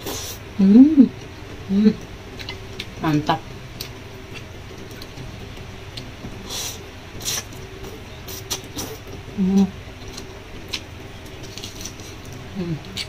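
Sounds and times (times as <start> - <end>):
person humming: 0.6 - 2.0, 8.8 - 9.8, 12.6 - 13.0
biting and chewing: 10.1 - 13.0.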